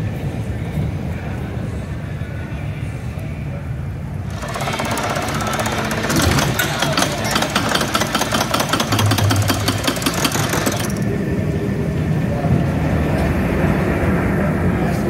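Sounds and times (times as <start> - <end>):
locomotive engine humming: 0.0 - 15.0
roller coaster cars rattling: 4.1 - 15.0.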